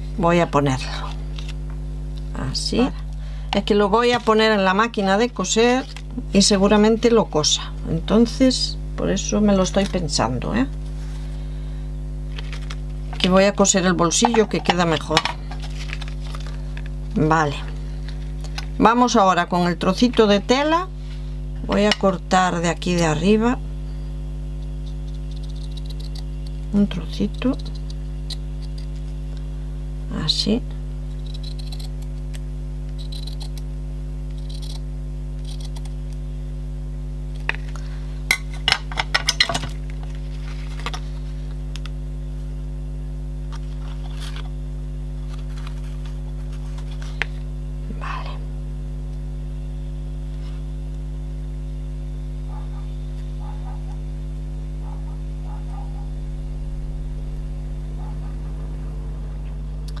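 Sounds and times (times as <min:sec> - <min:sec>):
low hum: 0:00.0 - 1:00.0
scissors clicking and clinking: 0:31.2 - 0:32.0.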